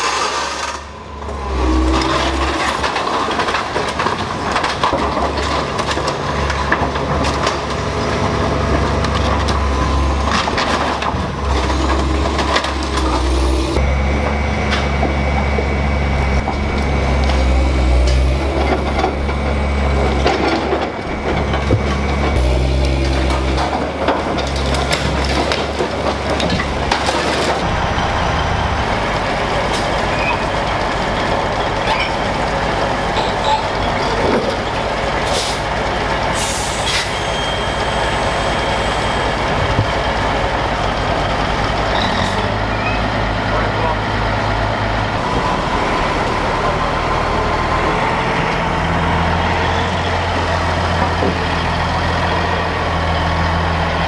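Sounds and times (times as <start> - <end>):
excavator diesel engine working: 0.0 - 54.0
truck diesel engine running: 0.0 - 54.0
air brake hisses: 36.4 - 37.2.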